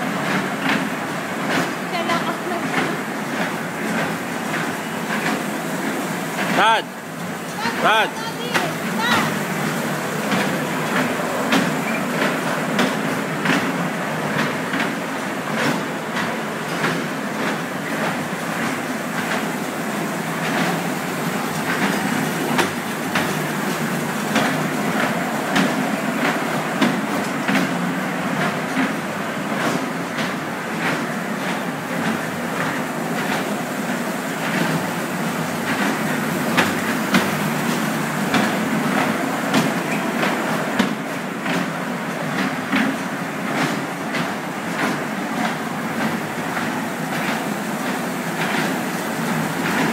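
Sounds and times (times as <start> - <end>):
kiddie train rumble: 7.5 - 16.5.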